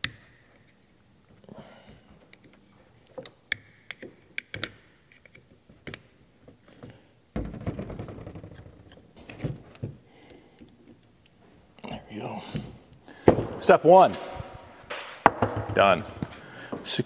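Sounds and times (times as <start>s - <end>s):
knocks on workbench: 15.2s - 15.8s.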